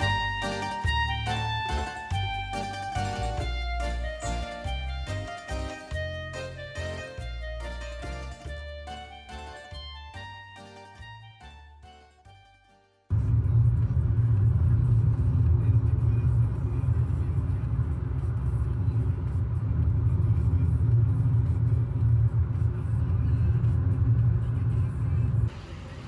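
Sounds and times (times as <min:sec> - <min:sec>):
car rumbling on the move: 0:13.1 - 0:26.0.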